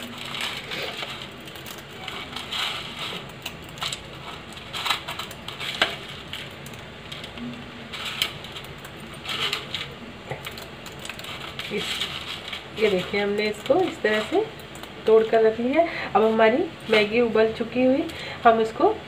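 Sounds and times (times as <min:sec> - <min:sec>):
dry noodles crunching by hand: 0:00.0 - 0:15.1.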